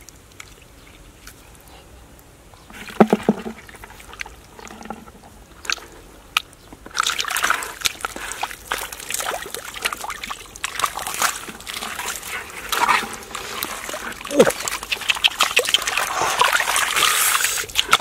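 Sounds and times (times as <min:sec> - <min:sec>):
hand sloshing muddy water: 0:06.9 - 0:18.0.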